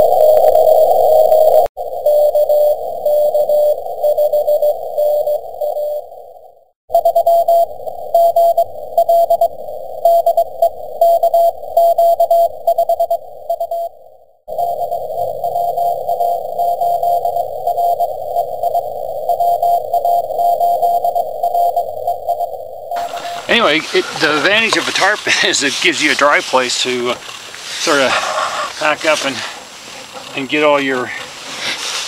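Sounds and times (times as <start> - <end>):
morse code keyed tone: 1.3 - 6.2, 6.9 - 25.0
radio band hiss: 23.0 - 32.0.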